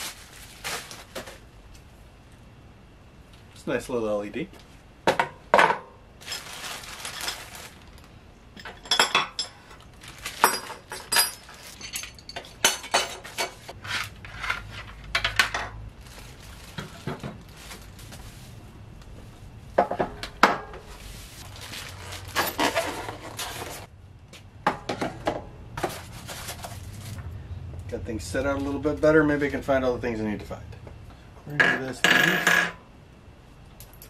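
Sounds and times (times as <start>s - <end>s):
plastic packaging rustling: 0.0s - 1.5s, 6.2s - 8.2s, 9.8s - 12.2s, 15.9s - 18.6s, 21.0s - 23.9s, 25.8s - 27.3s
metal parts clinking: 8.6s - 13.7s, 21.9s - 23.9s.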